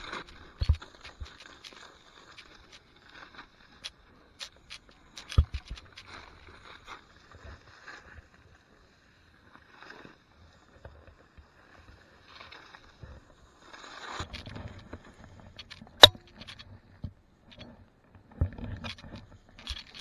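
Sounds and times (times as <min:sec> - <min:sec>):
small clicks and knocks: 0:00.0 - 0:06.6, 0:14.1 - 0:20.0.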